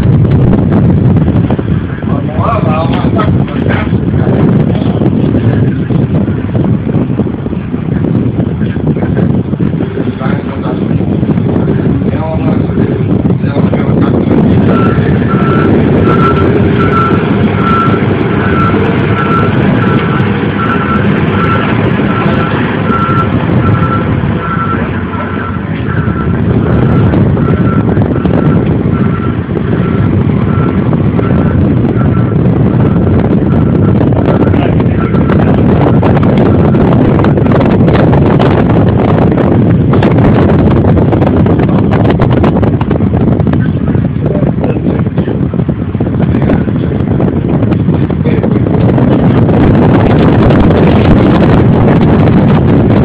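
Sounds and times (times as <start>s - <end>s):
diesel engine running: 0.0s - 53.0s
wind buffeting microphone: 0.0s - 53.0s
reversing alarm beeping: 14.6s - 37.0s.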